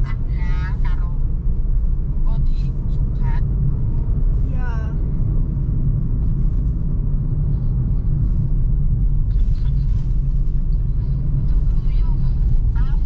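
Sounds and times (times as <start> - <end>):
car cabin road and engine rumble: 0.0 - 13.0.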